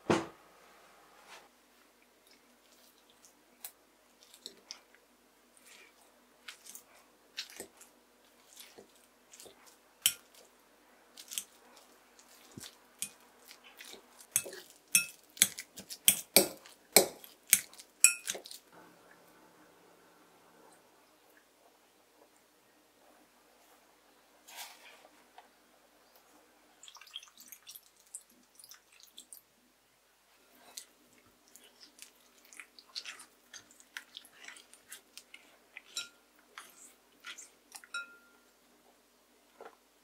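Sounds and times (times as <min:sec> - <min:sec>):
metal clinking on glass bowl: 0:18.0 - 0:18.4, 0:37.8 - 0:38.4.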